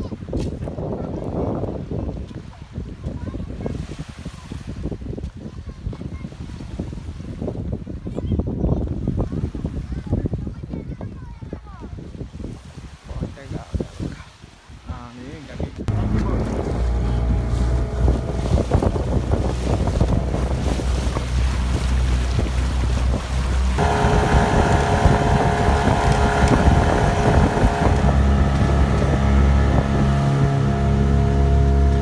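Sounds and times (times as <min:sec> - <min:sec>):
wind buffeting microphone: 0:00.0 - 0:32.0
water rushing past hull: 0:12.4 - 0:32.0
motorboat engine running: 0:15.9 - 0:32.0.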